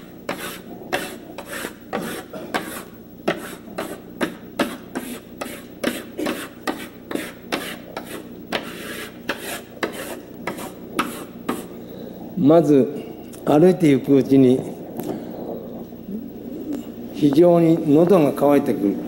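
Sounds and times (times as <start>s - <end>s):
chalk scraping on blackboard: 0.0s - 11.8s.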